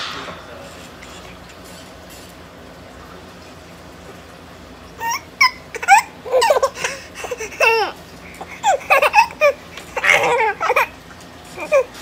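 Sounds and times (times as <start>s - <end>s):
babies laughing: 5.0s - 11.0s, 11.6s - 12.0s.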